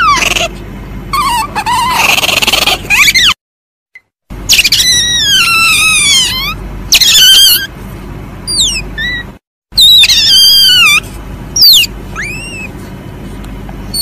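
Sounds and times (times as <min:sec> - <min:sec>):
civet shrill falling calls: 0:08.5 - 0:11.0, 0:11.6 - 0:12.7.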